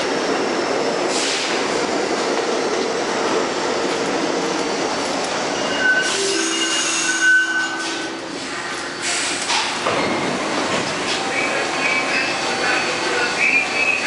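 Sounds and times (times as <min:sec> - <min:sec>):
train braking rumble: 0:05.0 - 0:14.0
train doors sliding open: 0:05.1 - 0:11.3.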